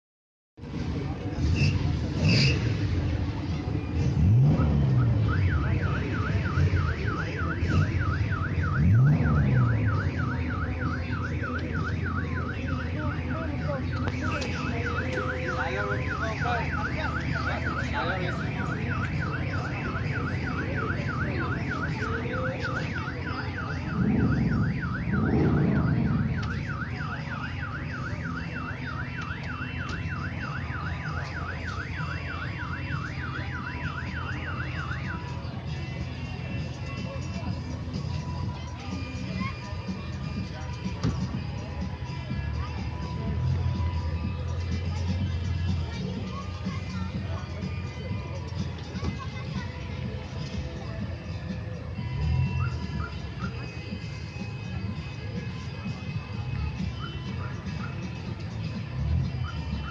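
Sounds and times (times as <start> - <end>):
police siren yelping: 3.5 - 59.9
deep swooping siren: 3.8 - 35.7.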